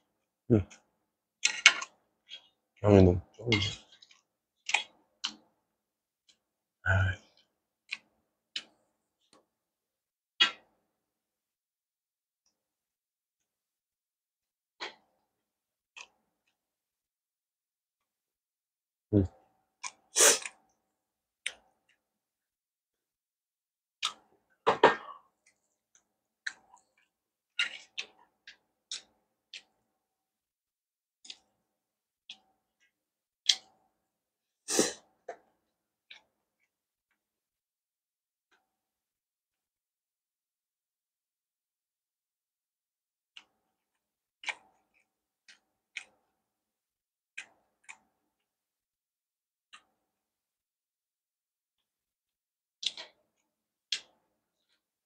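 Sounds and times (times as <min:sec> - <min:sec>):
mouth chewing clicks and crunches: 0:19.8 - 0:20.7, 0:24.0 - 0:24.4, 0:25.4 - 0:29.8, 0:44.4 - 0:46.3, 0:47.3 - 0:48.2, 0:52.8 - 0:54.9
mouth eating sound: 0:20.2 - 0:20.5.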